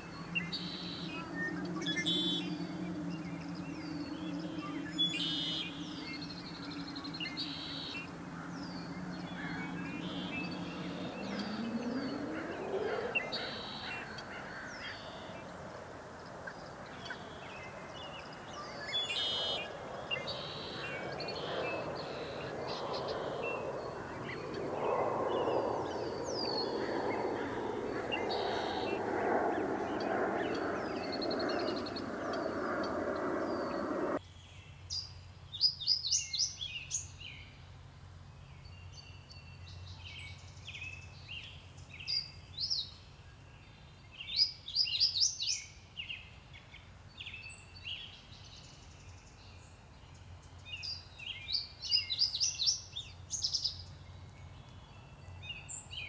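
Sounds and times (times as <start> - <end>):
birds calling: 0.0 - 34.2
low dense layer of sound: 0.0 - 34.2
low two-toned hum: 0.0 - 34.2.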